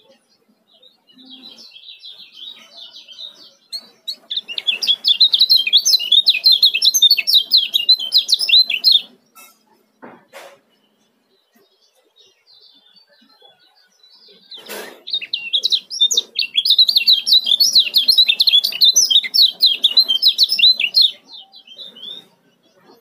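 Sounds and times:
bird chirping high notes: 3.7s - 9.6s, 15.0s - 22.4s.

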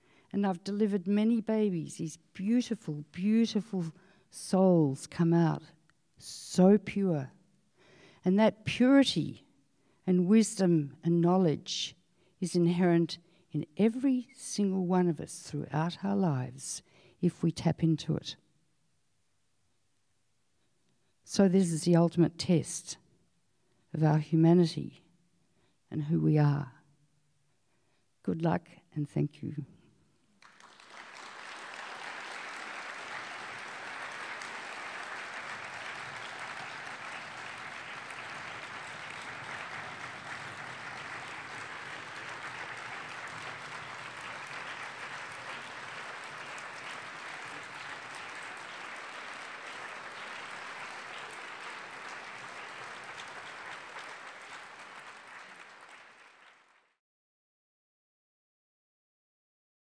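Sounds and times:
audience applauding: 30.4s - 57.0s.

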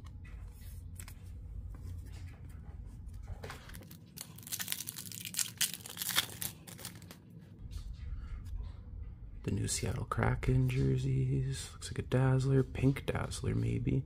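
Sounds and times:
foil wrapper tearing and crinkling: 3.7s - 7.2s.

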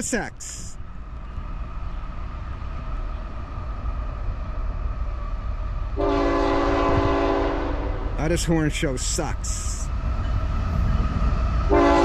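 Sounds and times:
diesel locomotive rumble: 0.0s - 12.0s
train air horn chord: 6.0s - 8.0s, 11.7s - 12.0s.

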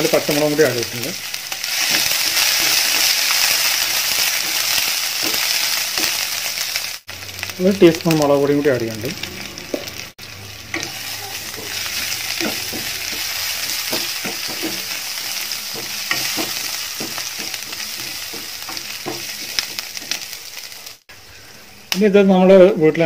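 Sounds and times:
spices sizzling in hot oil: 0.0s - 22.9s
spatula scraping a pan: 10.7s - 20.4s.

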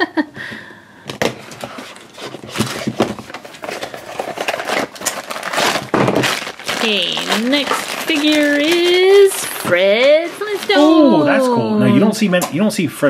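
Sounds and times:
cardboard box clicks and rustles: 1.2s - 9.7s.

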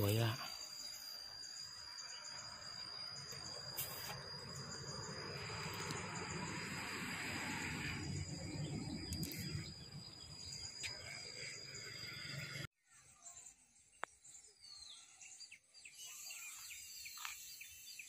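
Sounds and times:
insects droning: 0.0s - 18.0s
low fluctuating rumble: 4.4s - 10.8s.

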